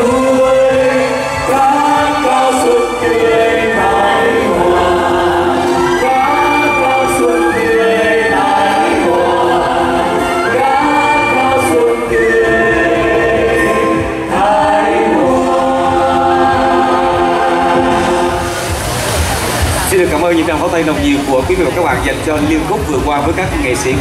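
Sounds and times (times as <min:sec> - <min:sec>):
group singing with instrumental backing: 0:00.0 - 0:20.6.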